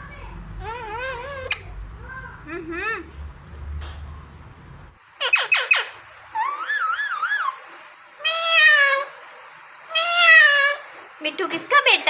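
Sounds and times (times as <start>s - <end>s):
parakeet calling: 0.6s - 1.8s, 5.2s - 9.2s.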